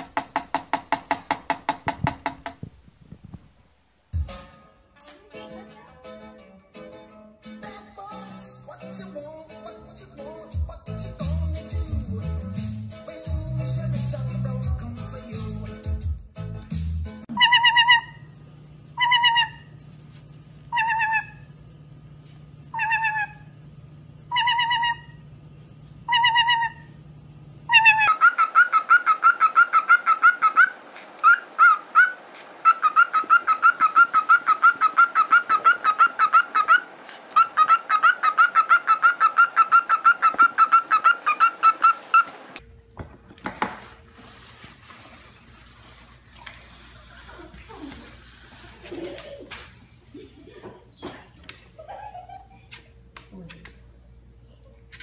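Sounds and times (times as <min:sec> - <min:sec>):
parrot shrill calls: 0:17.3 - 0:18.3, 0:19.0 - 0:19.7, 0:20.7 - 0:21.5, 0:22.7 - 0:23.5, 0:24.3 - 0:25.2, 0:26.1 - 0:26.9, 0:27.7 - 0:42.4.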